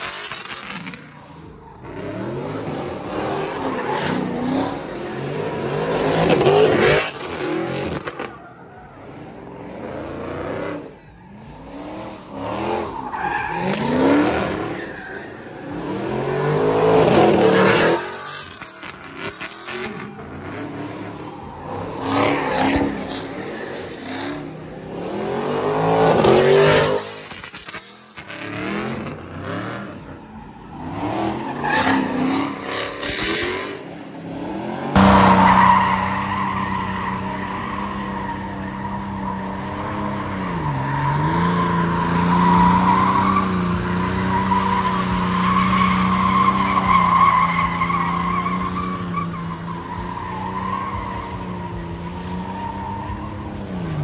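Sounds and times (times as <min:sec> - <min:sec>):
car engine revving: 0:30.8 - 0:54.0.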